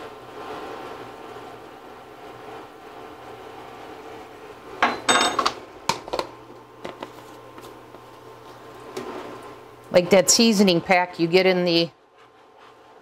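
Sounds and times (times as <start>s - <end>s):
steady low hum: 0.0s - 13.0s
spoon and dishes clattering: 4.8s - 5.6s
utensils tapped and set down: 4.8s - 7.1s.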